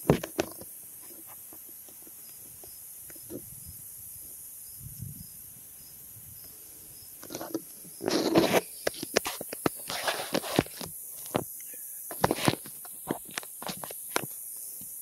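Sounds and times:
quiet outdoor background: 0:00.0 - 0:15.0
rustling scuffing and clicks: 0:07.2 - 0:11.5, 0:12.1 - 0:14.4.

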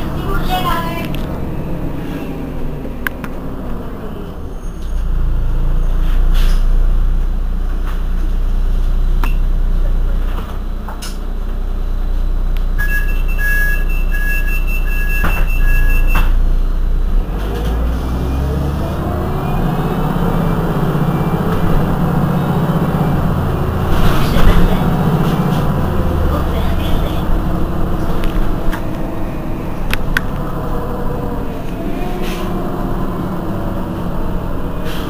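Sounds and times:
bus diesel engine idling: 0:00.0 - 0:35.0
short electronic beeps: 0:12.8 - 0:16.3.

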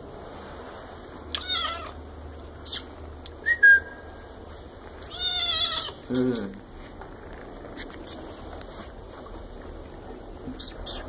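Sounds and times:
kitten mewing: 0:01.3 - 0:02.0, 0:05.1 - 0:06.4.

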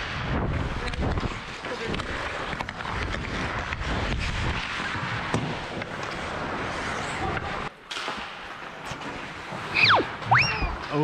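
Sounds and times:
wind over microphone: 0:00.0 - 0:05.9
skates scraping on ice: 0:00.0 - 0:11.0.

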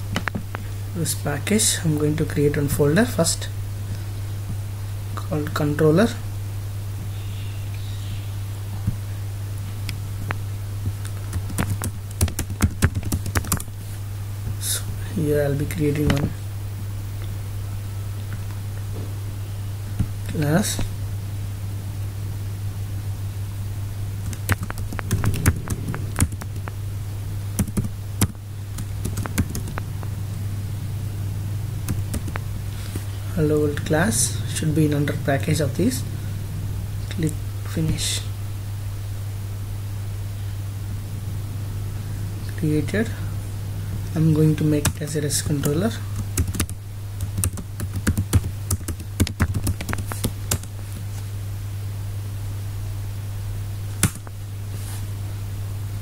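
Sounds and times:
steady low hum: 0:00.0 - 0:56.0
keyboard typing: 0:11.2 - 0:13.7, 0:24.2 - 0:26.7, 0:27.6 - 0:29.9, 0:31.8 - 0:32.5, 0:45.6 - 0:50.7.

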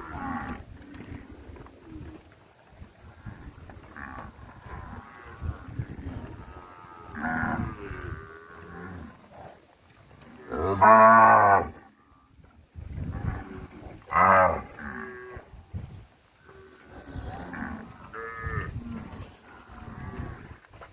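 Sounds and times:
cattle mooing: 0:00.0 - 0:01.2, 0:03.8 - 0:09.1, 0:16.5 - 0:20.5.

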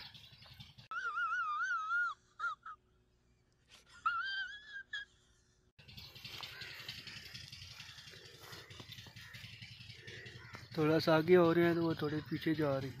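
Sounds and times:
wobbling whining tone: 0:05.8 - 0:13.0.

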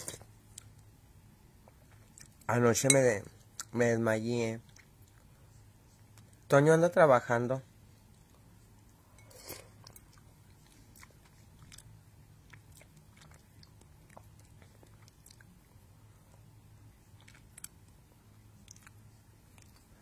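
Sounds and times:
low steady hum: 0:00.0 - 0:20.0
chewing and mouth sounds: 0:01.6 - 0:02.5, 0:04.6 - 0:05.4, 0:08.1 - 0:20.0.

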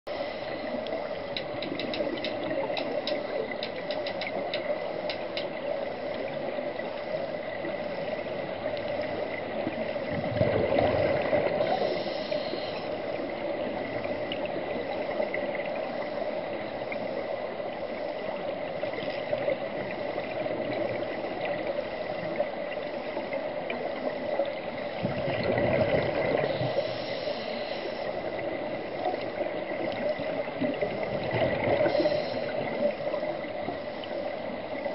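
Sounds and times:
underwater hiss: 0:00.1 - 0:34.9
faint rapid clicking: 0:00.8 - 0:05.6
scuba exhaust bubbles rushing: 0:08.4 - 0:12.2, 0:18.7 - 0:27.0, 0:28.2 - 0:34.9.

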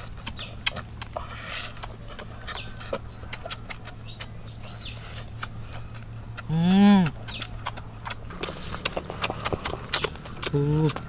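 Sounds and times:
people chewing crunchy food: 0:00.0 - 0:11.0
bird chirps: 0:01.6 - 0:06.5, 0:07.1 - 0:11.0.

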